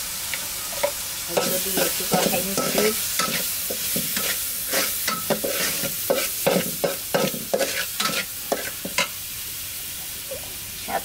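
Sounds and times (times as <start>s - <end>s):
oil sizzling: 0.0s - 11.0s.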